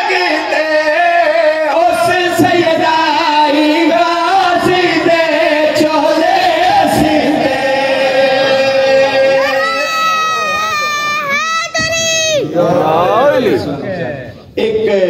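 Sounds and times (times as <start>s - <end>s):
man chanting into a microphone: 0.0s - 9.5s.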